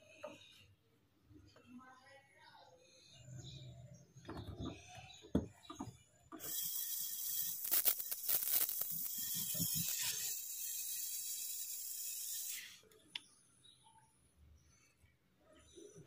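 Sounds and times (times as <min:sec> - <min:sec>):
brazing torch flame hissing: 0:06.4 - 0:12.8.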